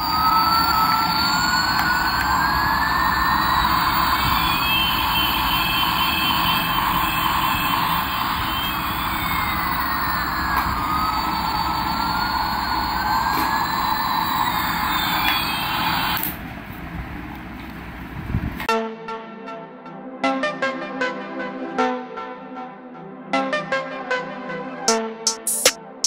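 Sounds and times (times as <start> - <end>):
toy jet engine sound effect: 25.3 - 25.8.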